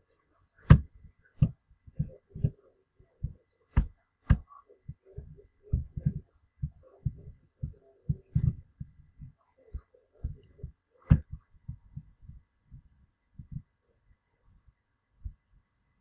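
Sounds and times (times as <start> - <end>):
low muffled thumps: 0.6 - 2.6, 3.2 - 13.7.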